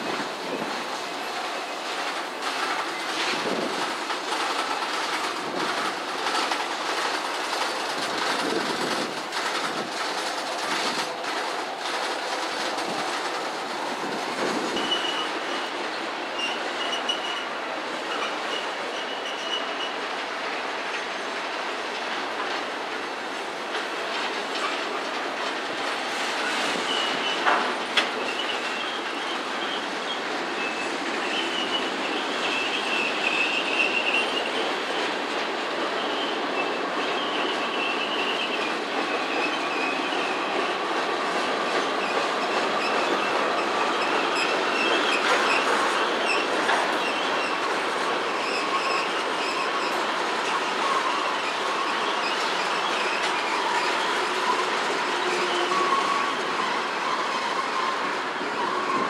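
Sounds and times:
train wheels rumbling on rail: 0:00.0 - 0:59.0
high-pitched wheel squeal: 0:14.4 - 0:15.6, 0:48.3 - 0:59.0.

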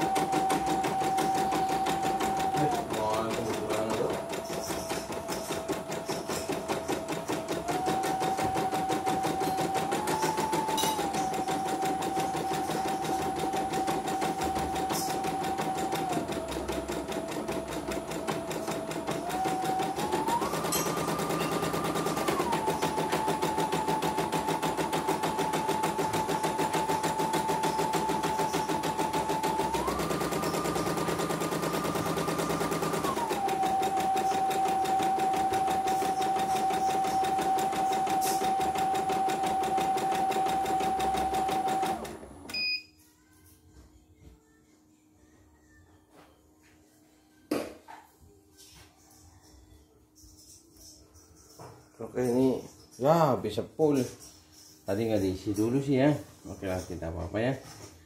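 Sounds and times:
embroidery machine stitching: 0:00.0 - 0:42.6.

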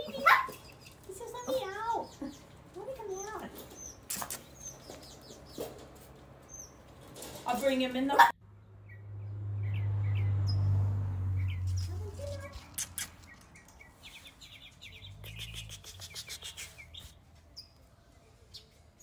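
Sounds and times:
clicks and scuffs: 0:03.2 - 0:07.7, 0:11.7 - 0:17.5
puppies squeaking and whimpering: 0:11.8 - 0:13.7.

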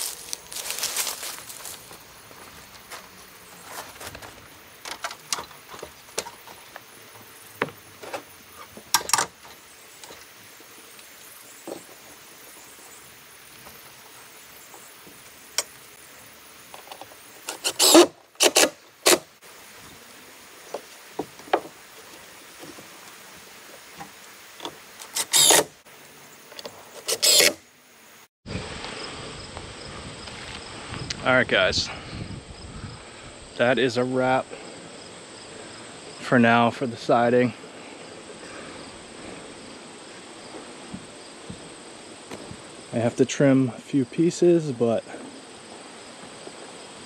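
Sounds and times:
steady outdoor hiss: 0:00.0 - 0:47.0
power fastening tool bursts: 0:16.8 - 0:19.3, 0:25.0 - 0:25.8, 0:26.9 - 0:27.6.

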